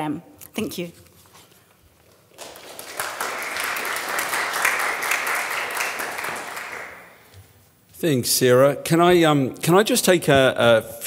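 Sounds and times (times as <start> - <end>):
audience applauding: 2.3 - 7.3.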